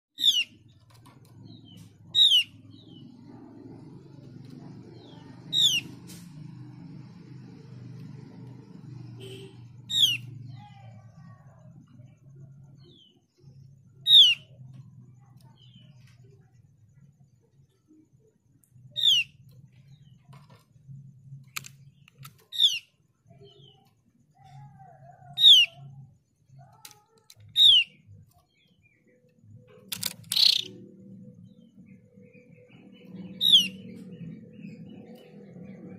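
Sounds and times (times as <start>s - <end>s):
bird calls with falling notes: 0.2s - 3.2s, 3.8s - 6.2s, 9.2s - 10.6s, 13.9s - 14.8s, 18.9s - 20.6s, 21.5s - 29.2s, 29.8s - 35.9s
bird calling downward notes: 33.2s - 34.7s.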